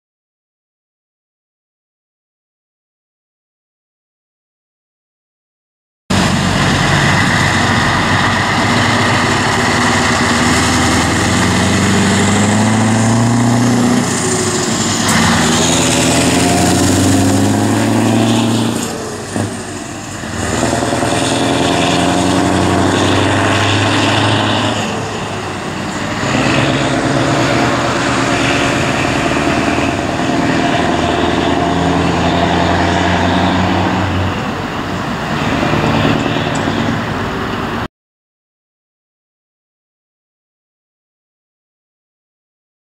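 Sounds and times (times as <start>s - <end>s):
truck diesel engine accelerating: 6.1s - 37.9s.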